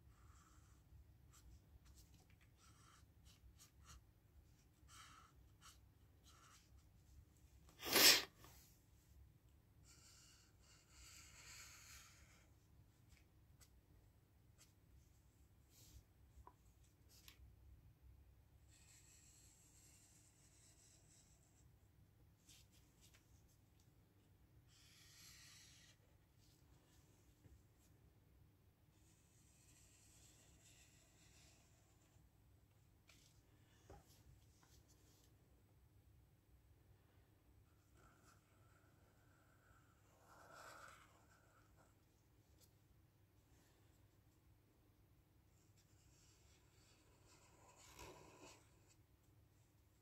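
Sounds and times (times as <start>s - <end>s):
marker scratching on paper: 0.1s - 6.9s, 7.8s - 8.3s, 9.8s - 12.4s, 18.7s - 21.5s, 24.7s - 27.0s, 29.0s - 32.1s, 37.8s - 42.0s, 45.8s - 49.0s.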